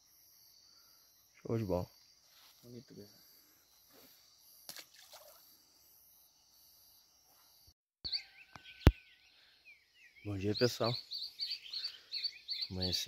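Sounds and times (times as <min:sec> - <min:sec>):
crickets and insects trilling: 0:00.0 - 0:07.2, 0:09.1 - 0:13.0
birds chirping: 0:05.3 - 0:13.0.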